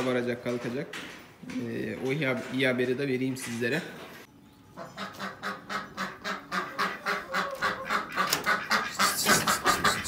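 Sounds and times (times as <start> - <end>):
ducks quacking: 4.8 - 10.0.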